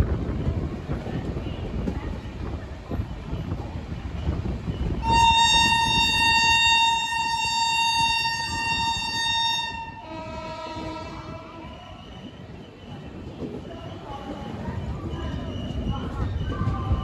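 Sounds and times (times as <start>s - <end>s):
train rumbling: 0.0s - 17.0s
train horn blast: 5.0s - 11.8s.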